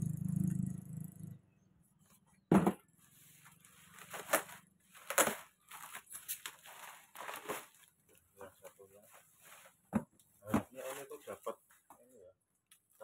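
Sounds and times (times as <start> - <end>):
bubble wrap rustling and crinkling: 3.2 - 9.8.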